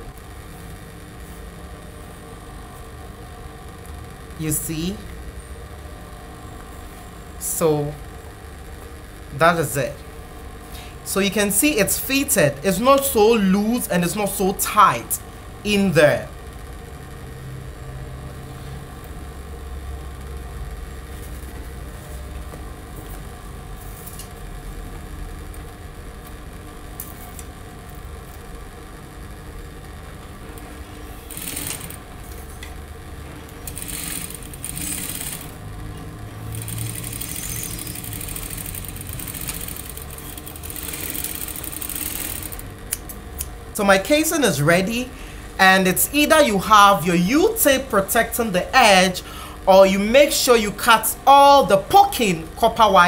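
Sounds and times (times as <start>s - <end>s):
sewing machine motor humming: 30.5s - 32.6s, 33.2s - 42.9s
sewing machine stitching: 31.2s - 32.1s, 33.6s - 35.6s, 36.5s - 42.7s.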